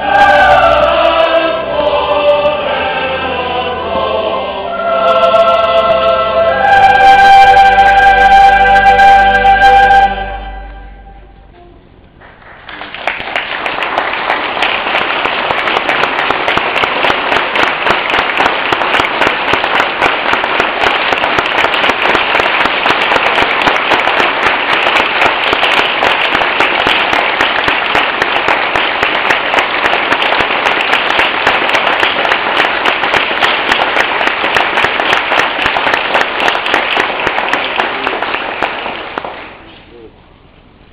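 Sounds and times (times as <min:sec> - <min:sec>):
choir singing in echoing hall: 0:00.0 - 0:11.6
audience applause: 0:12.2 - 0:39.8.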